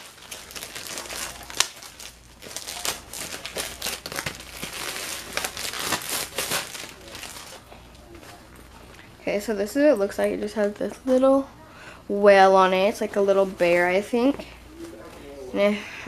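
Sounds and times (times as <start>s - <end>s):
plastic wrapping crinkling: 0.0s - 9.1s.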